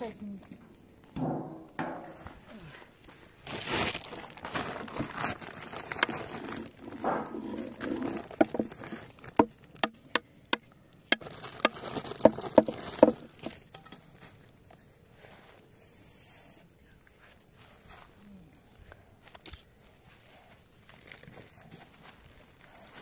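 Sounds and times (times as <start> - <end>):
plastic bag rustling: 2.1 - 10.2, 11.0 - 14.6, 19.6 - 23.0.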